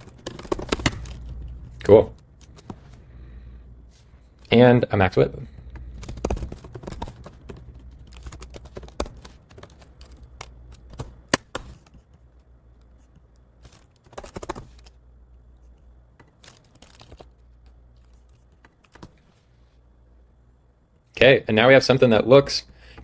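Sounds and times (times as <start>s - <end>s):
keyboard typing: 0.0s - 2.8s, 5.5s - 12.9s, 13.7s - 15.0s.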